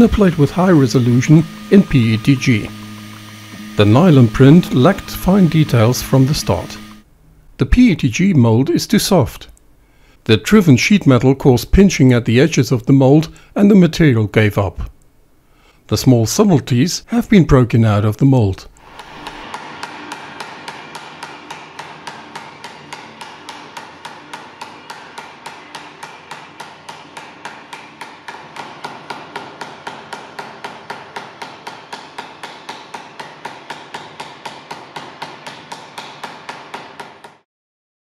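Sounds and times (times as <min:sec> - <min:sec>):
steady metallic ring: 0:19.0 - 0:27.7
hammer tapping on metal: 0:19.0 - 0:37.4.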